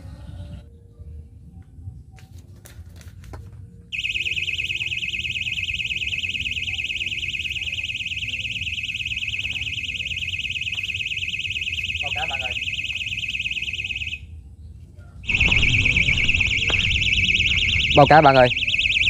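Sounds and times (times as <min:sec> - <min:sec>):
bite alarm beeping: 0:04.0 - 0:14.2, 0:15.2 - 0:19.0.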